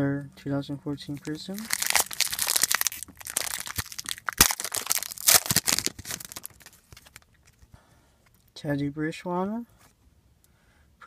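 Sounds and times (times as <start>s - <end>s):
card pack wrapper tearing: 1.2s - 7.6s.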